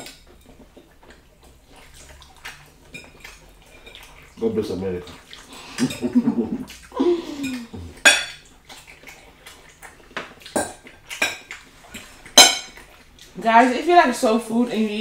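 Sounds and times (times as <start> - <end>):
cutlery clinking on plates: 2.9 - 4.1, 7.4 - 8.5, 10.2 - 12.8.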